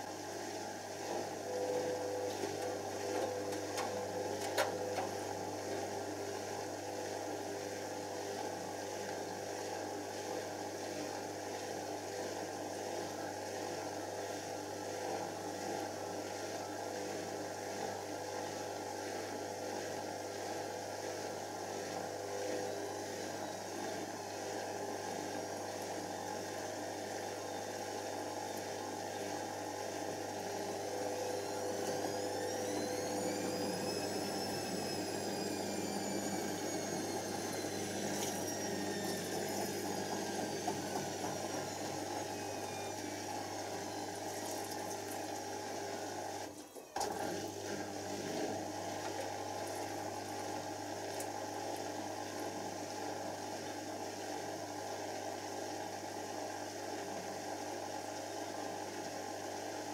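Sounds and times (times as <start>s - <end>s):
washing machine spinning hum: 0.0s - 59.9s
motor whine rising and falling: 29.5s - 44.5s.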